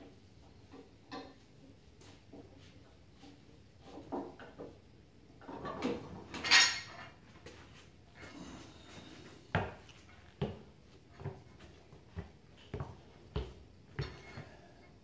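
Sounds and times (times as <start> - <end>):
dumbbells clinking metal on metal: 6.3 - 7.1.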